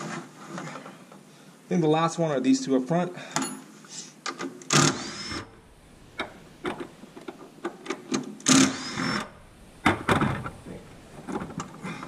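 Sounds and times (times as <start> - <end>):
cordless drill motor whine: 4.8 - 6.5, 8.5 - 9.5.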